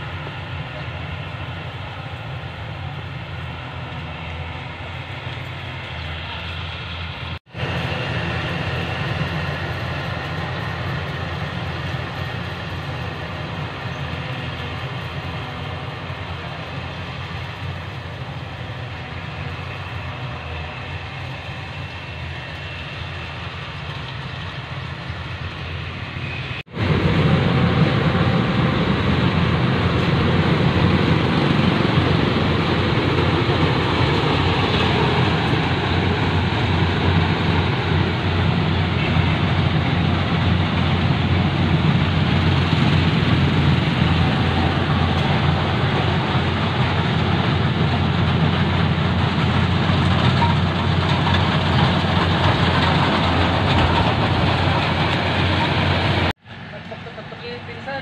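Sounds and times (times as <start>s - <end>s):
combine harvester running: 0.0s - 58.0s.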